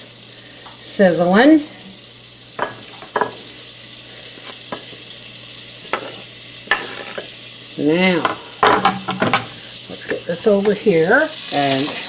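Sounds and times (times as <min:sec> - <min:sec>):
butter sizzling: 0:00.0 - 0:12.0.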